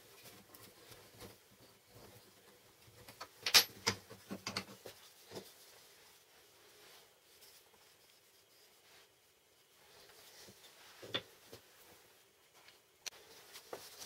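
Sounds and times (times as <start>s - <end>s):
wooden parts clicking and knocking: 3.0s - 4.9s.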